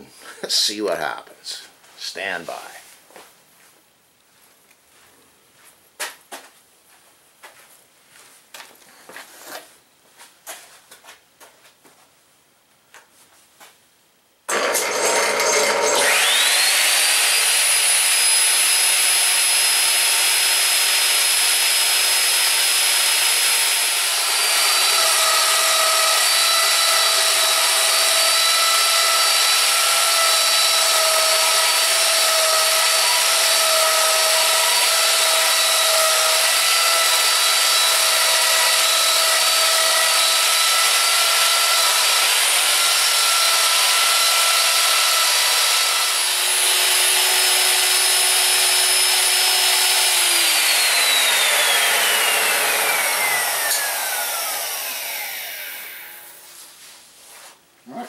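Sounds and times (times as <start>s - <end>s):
wood router whining: 14.5s - 56.5s.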